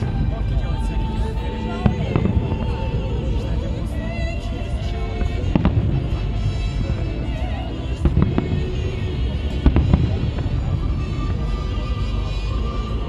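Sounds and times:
fireworks bursting: 0.0 - 13.0
low rumble: 0.0 - 13.0
music: 0.0 - 13.0.

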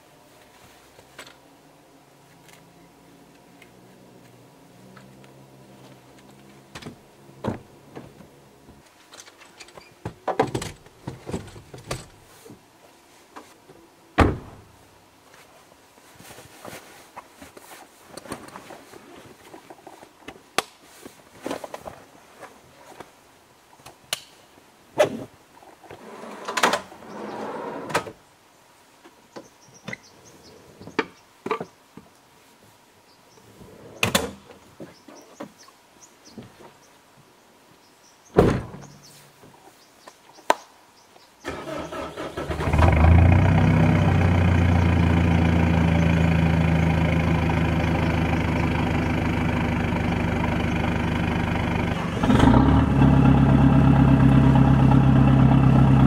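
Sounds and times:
rustling: 14.8 - 23.9.

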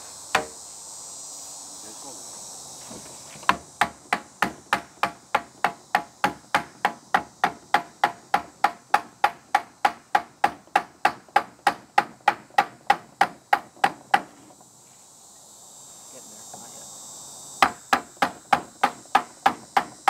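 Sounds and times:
hammer striking wooden block: 0.3 - 0.6, 3.5 - 14.3.

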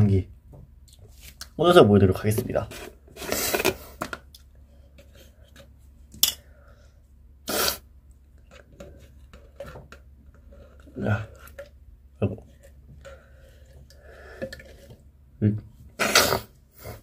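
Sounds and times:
short hiss: 7.5 - 7.8.

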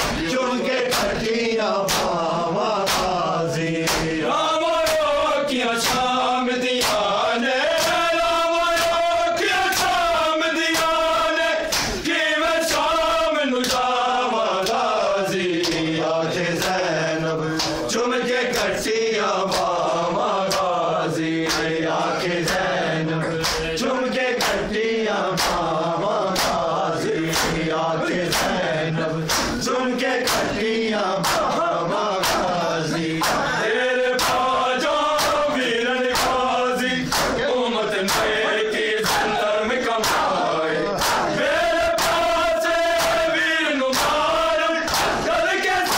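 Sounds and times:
men chanting in unison: 0.0 - 45.9
hands slapping chests: 0.9 - 3.2, 3.8 - 4.2, 4.8 - 5.1, 5.8 - 7.1, 7.7 - 8.1, 8.7 - 12.1, 13.6 - 14.0, 14.6 - 14.8, 15.6 - 15.9, 17.5 - 17.9, 19.5 - 19.8, 20.5 - 20.8, 21.4 - 21.8, 22.4 - 22.7, 23.3 - 23.8, 24.4 - 24.7, 25.3 - 25.7, 26.3 - 26.7, 27.3 - 27.6, 28.3 - 28.6, 29.2 - 29.6, 30.2 - 30.6, 31.2 - 31.6, 32.2 - 35.5, 36.1 - 37.4, 38.0 - 38.4, 39.0 - 39.4, 40.0 - 45.9.

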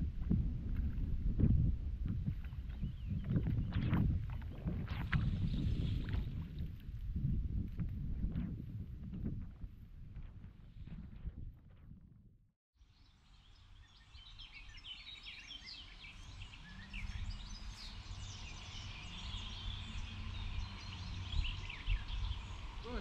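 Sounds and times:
songbirds chirping: 12.8 - 23.0.

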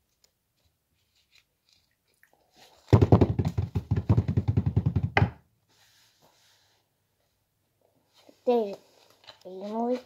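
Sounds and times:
rapid knocks: 2.9 - 5.4.

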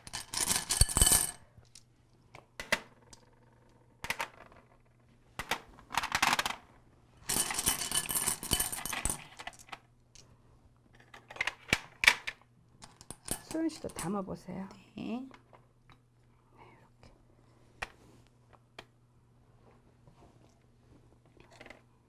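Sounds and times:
pebbles and shells clinking on metal tray: 0.0 - 1.8, 7.3 - 9.7.

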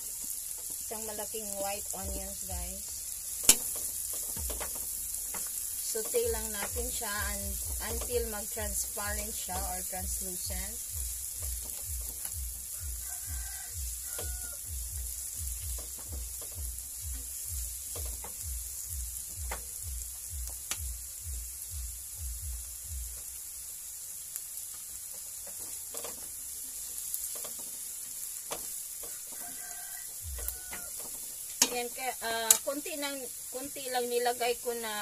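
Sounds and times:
onions sizzling in a pan: 0.0 - 35.0
spatula clicking against pan: 3.4 - 7.0, 28.4 - 29.4, 30.3 - 31.9, 32.5 - 32.7
low regular pulse: 6.2 - 13.0, 14.6 - 23.4.

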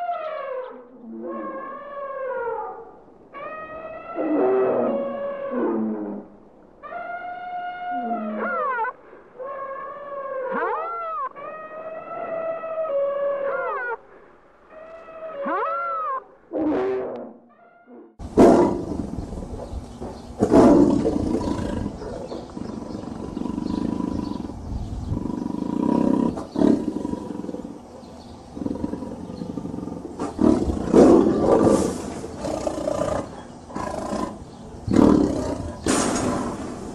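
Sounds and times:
tiger roaring: 18.2 - 19.7, 20.4 - 36.9.

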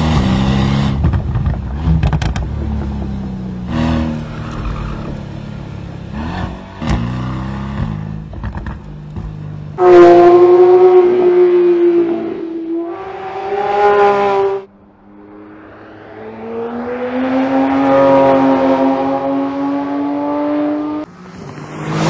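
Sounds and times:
car engine running low with crackles: 1.0 - 7.0, 7.7 - 9.8
car engine revving high: 9.8 - 21.1.

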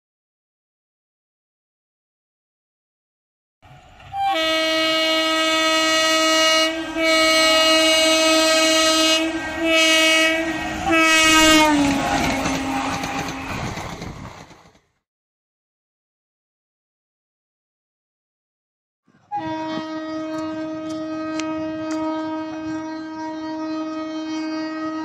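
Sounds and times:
train coaches rushing and clattering: 3.6 - 15.0
locomotive horn blasts: 3.9 - 13.6, 19.3 - 25.0.

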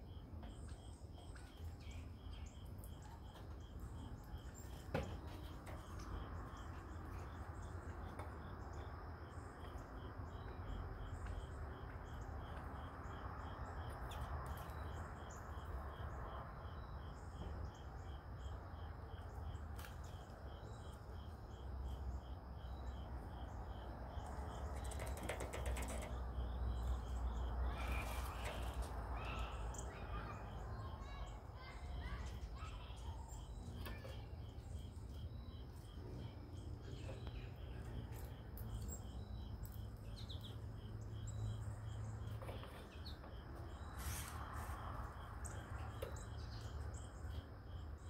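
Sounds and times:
insect chirping: 0.0 - 48.0
rustles: 27.6 - 29.8, 42.2 - 46.8.

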